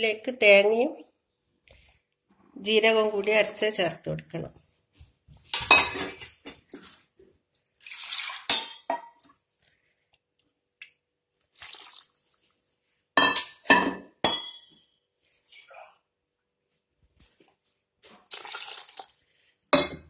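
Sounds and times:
water pouring into a clay pot: 0:07.8 - 0:08.5, 0:11.5 - 0:12.3, 0:18.2 - 0:19.2.

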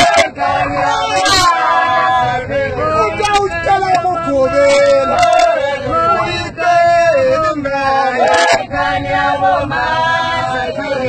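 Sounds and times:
road rumble in a minibus: 0:00.0 - 0:11.0
voices singing a chant-like song: 0:00.0 - 0:11.0.

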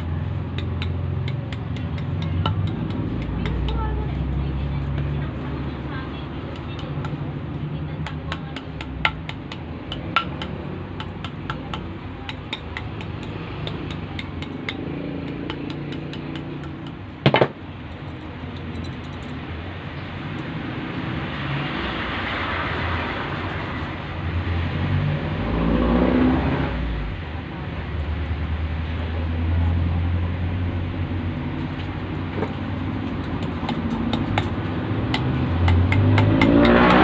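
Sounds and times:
tools tapping on motor coils: 0:00.0 - 0:04.1, 0:08.0 - 0:19.4, 0:32.3 - 0:37.0.

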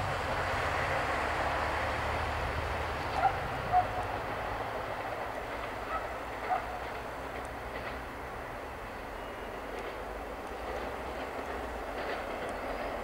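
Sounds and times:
car driving past: 0:00.0 - 0:04.6
diesel railcar rumbling: 0:00.0 - 0:13.0.

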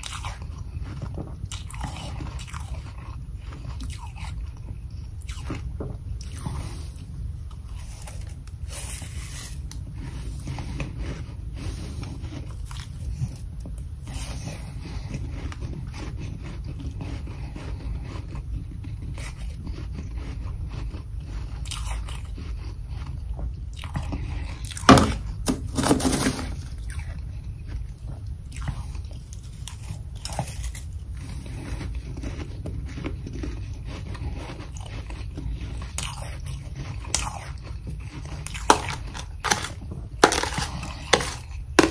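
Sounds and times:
chewing and crunching frost: 0:00.0 - 0:41.9
steady low hum: 0:00.0 - 0:41.9
spoon scraping frost in bowl: 0:25.0 - 0:26.6, 0:38.6 - 0:41.9.

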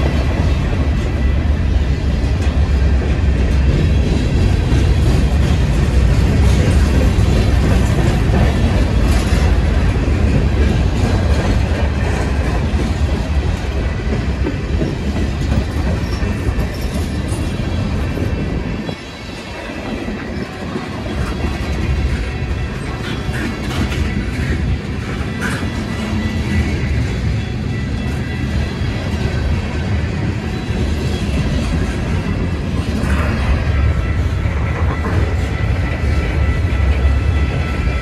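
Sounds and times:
freight train rumbling past: 0:00.0 - 0:38.0.

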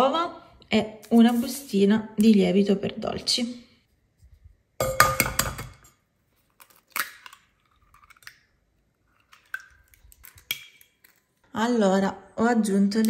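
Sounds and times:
eggs knocking against bowl: 0:04.8 - 0:05.8
eggshell crunching: 0:06.5 - 0:11.4.

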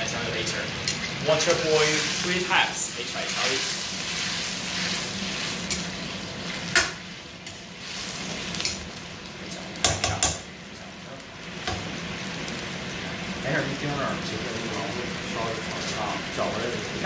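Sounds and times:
food sizzling in a wok: 0:00.0 - 0:17.0
metal ladle knocking on pan: 0:09.8 - 0:10.5.

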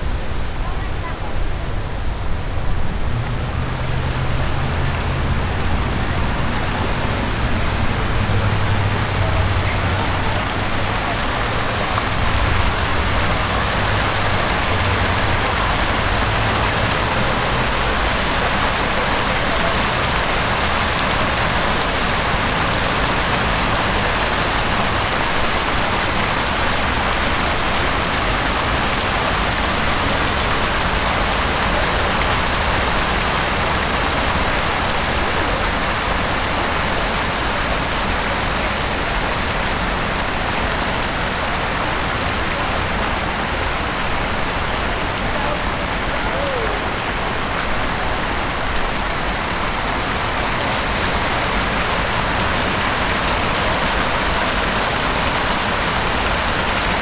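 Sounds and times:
falling water splashing: 0:00.0 - 0:57.0
low engine hum: 0:01.6 - 0:25.0.

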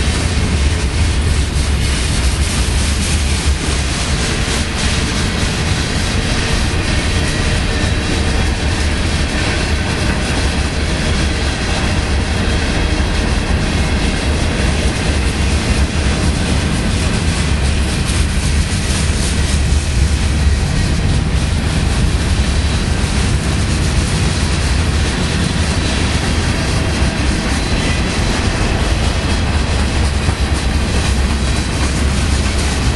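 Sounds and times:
freight train wheels rumbling: 0:00.0 - 0:32.9.

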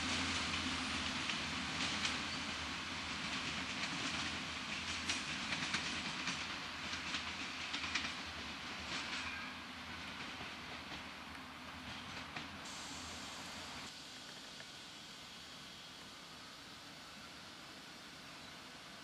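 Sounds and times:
train engine drone: 0:00.0 - 0:19.0
train wheels clicking over rail joints: 0:00.4 - 0:09.4.

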